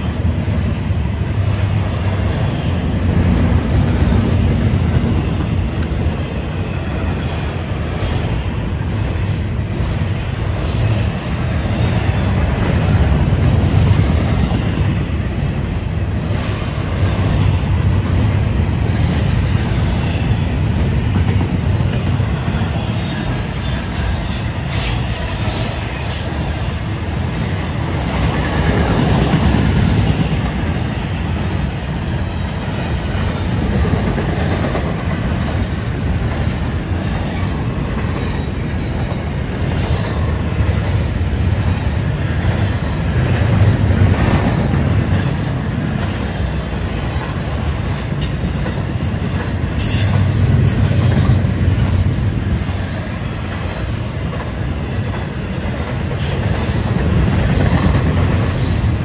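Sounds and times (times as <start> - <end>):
train wheels rumbling on rail: 0.0 - 59.0
high wheel squeal: 23.0 - 27.0.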